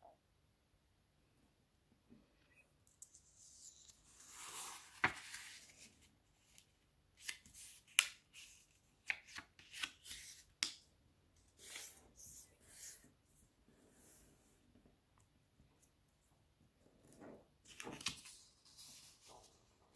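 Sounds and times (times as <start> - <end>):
paper rustling: 3.0 - 10.4, 17.7 - 19.7
paper snap: 7.2 - 8.2, 9.0 - 10.8
paper crinkles and clicks: 17.7 - 18.4.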